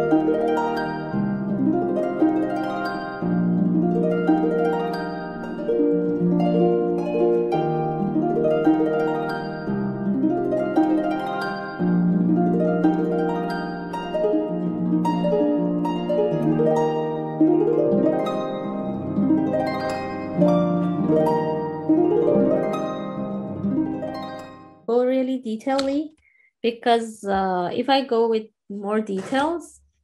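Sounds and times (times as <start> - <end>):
plucked harp-like notes: 0.0 - 24.8.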